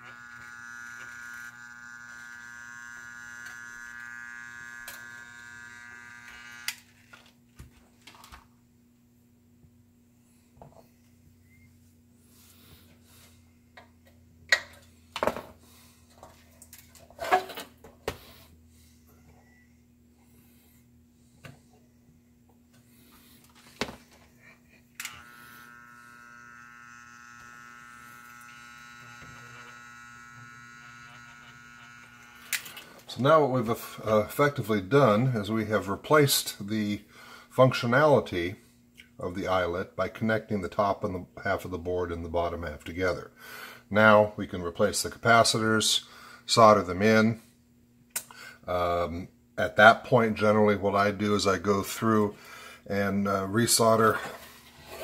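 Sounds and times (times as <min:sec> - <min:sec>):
soldering gun buzzing: 0:00.0 - 0:07.3, 0:25.0 - 0:33.2.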